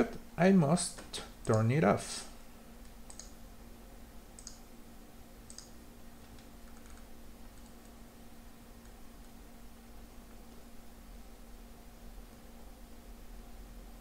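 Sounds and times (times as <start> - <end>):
low electrical hum: 0.0 - 14.0
computer mouse clicks: 2.8 - 3.4, 4.4 - 4.6, 5.5 - 8.0.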